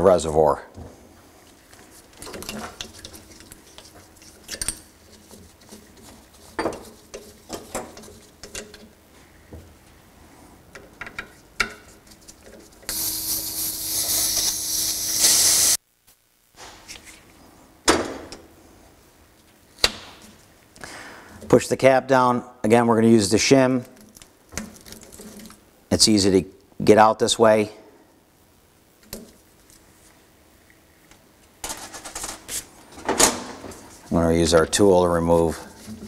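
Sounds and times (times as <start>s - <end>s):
gas hissing from valve: 12.9s - 15.8s.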